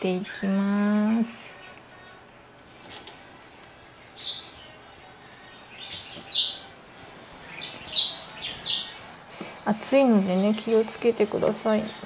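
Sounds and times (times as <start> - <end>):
bird chirping: 4.2 - 4.8, 5.6 - 6.7, 7.4 - 9.2.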